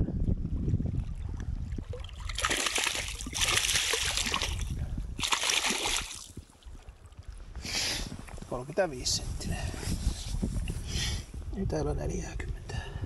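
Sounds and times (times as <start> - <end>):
water splashing and sloshing: 0.8 - 7.5.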